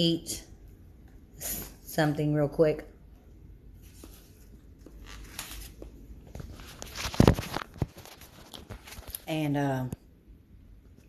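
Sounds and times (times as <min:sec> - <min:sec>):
phone being handled: 0:04.0 - 0:09.2.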